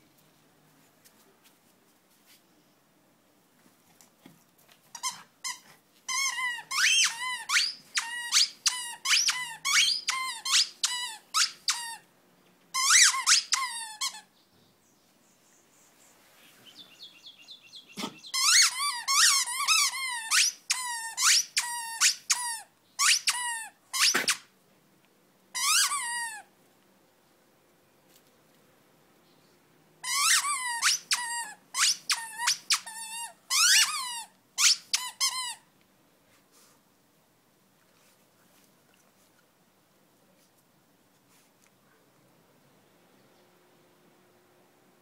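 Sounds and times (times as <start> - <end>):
squeaky dog toy squeaking: 4.9 - 12.1, 12.7 - 14.3, 18.0 - 24.5, 25.5 - 26.5, 30.0 - 35.7.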